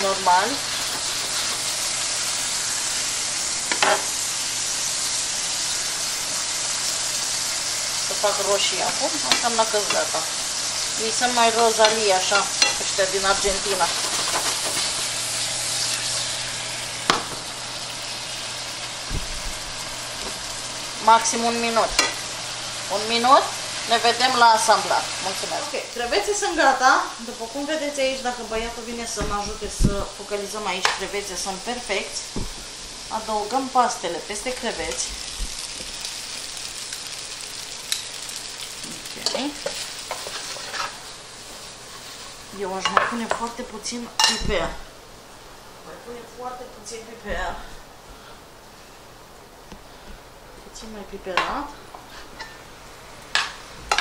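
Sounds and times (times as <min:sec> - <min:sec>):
shrimp sizzling in a skillet: 0:00.0 - 0:45.9, 0:50.8 - 0:54.0
soft low thump: 0:19.1 - 0:19.6, 0:29.2 - 0:30.1, 0:32.3 - 0:32.7
tongs clacking against pan: 0:37.9 - 0:38.2.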